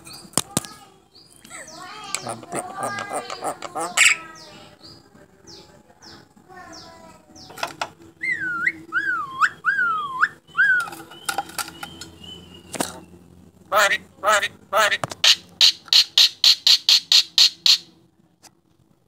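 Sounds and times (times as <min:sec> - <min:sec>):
myna chattering squeaks: 0:01.2 - 0:05.0, 0:14.3 - 0:17.9
swooping bird whistles: 0:08.2 - 0:12.8, 0:15.2 - 0:17.9.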